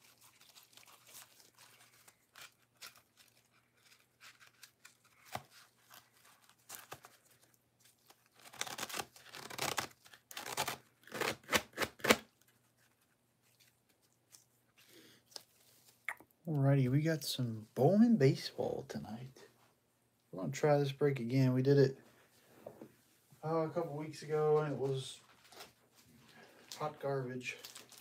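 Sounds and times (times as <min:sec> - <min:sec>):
packaging tearing and crinkling: 0:00.0 - 0:14.0, 0:27.6 - 0:28.0.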